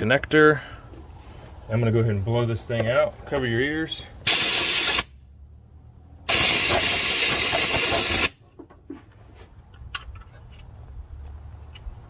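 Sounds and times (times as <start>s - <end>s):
compressed air blast: 4.2s - 5.2s, 6.3s - 8.4s.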